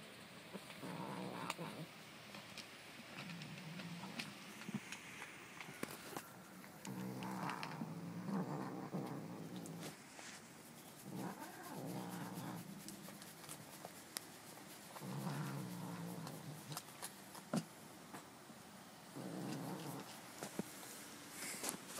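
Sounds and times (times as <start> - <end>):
cat growling: 0.5 - 1.9, 3.2 - 4.8, 6.7 - 10.0, 10.9 - 13.3, 14.9 - 16.9, 19.1 - 20.2.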